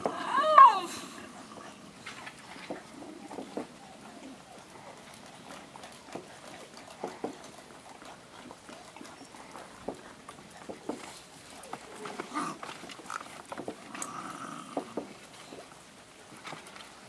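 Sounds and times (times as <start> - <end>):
puppy paws knocking on wood: 2.6 - 3.8, 9.8 - 11.1.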